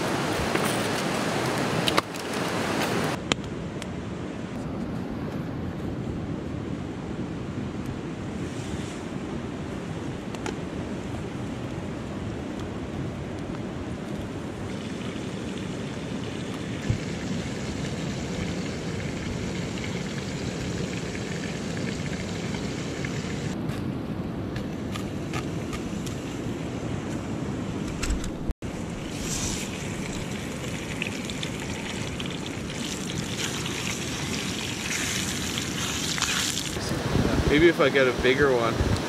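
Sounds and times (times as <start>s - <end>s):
campfire burning: 0.0s - 3.4s, 11.6s - 23.6s, 28.6s - 39.0s.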